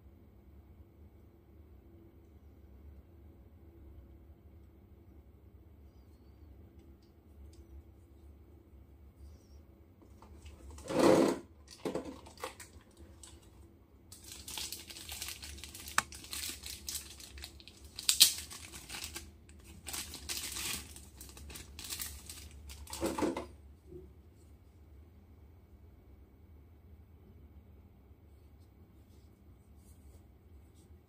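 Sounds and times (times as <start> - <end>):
plastic packaging bumps: 10.7 - 13.4, 14.1 - 23.5
plastic bag crinkling: 11.7 - 13.5, 14.1 - 23.4.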